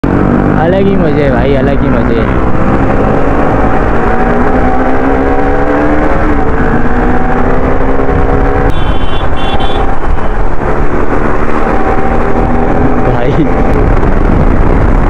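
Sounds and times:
wind rush: 0:02.3 - 0:15.0
vehicle horn: 0:08.7 - 0:10.3.

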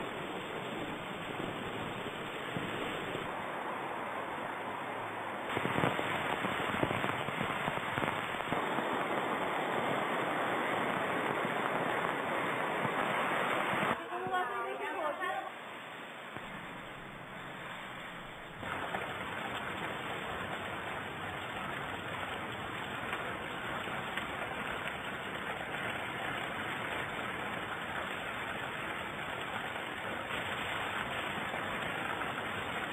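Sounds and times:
heavy rain hissing: 0:00.0 - 0:32.9
car driving on wet road: 0:15.8 - 0:32.9.

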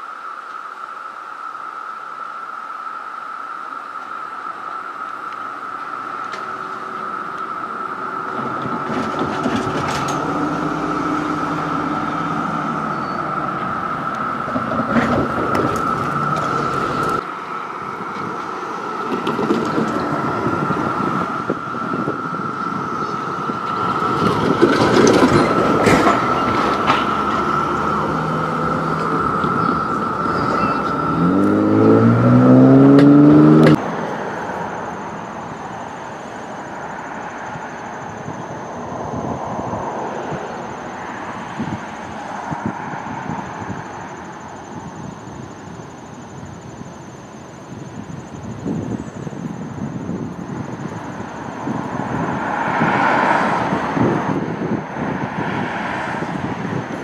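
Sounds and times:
cicada chorus drone: 0:00.0 - 0:57.0
high cicada buzz: 0:00.0 - 0:57.0
vehicles rumbling: 0:03.2 - 0:57.0
engine revving: 0:07.9 - 0:17.2, 0:26.4 - 0:33.8.

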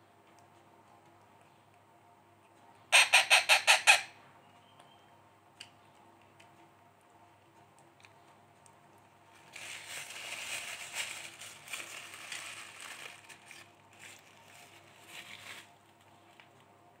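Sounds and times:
parakeet chick begging calls: 0:02.9 - 0:04.1.

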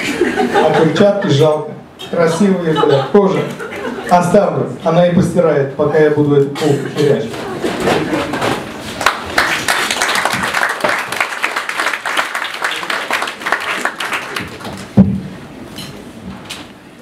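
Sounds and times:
audience applauding: 0:09.0 - 0:15.0
loud thump: 0:15.0 - 0:15.4.

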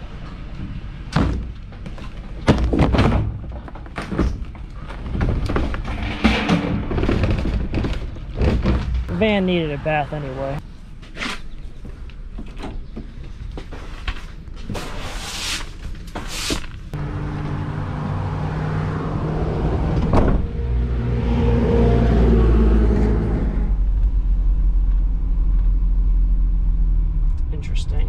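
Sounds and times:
van engine accelerating: 0:17.0 - 0:28.0.

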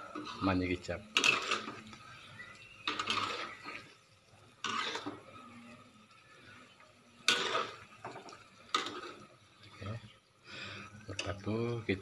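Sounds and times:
spatula scraping metal wok: 0:00.0 - 0:05.6, 0:07.2 - 0:09.4.

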